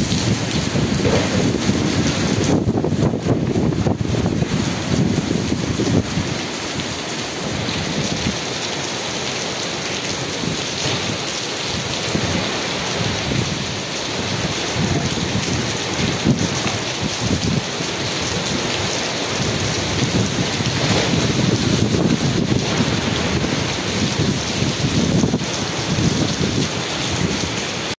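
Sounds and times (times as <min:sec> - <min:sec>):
heavy rain on paving and leaves: 0:00.0 - 0:27.9
wind gusting over microphone: 0:00.0 - 0:27.9.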